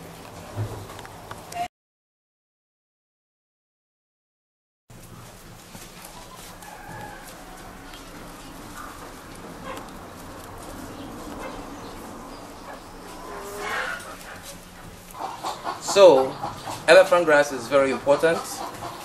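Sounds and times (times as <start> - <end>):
low steady hum: 4.9 - 19.0
chickens clucking: 5.2 - 19.0.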